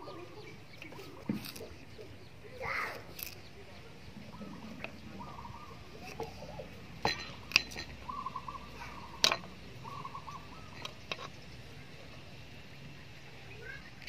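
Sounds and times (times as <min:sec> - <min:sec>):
bird calling: 0:00.0 - 0:06.8, 0:07.9 - 0:11.6
knife cutting carrot on board: 0:01.3 - 0:01.7.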